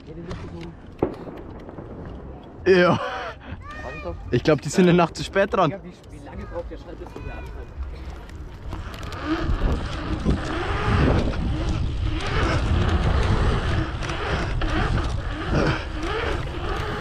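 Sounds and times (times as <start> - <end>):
bicycle tyres rolling on asphalt: 0.0 - 17.0
wind noise on microphone: 8.6 - 17.0.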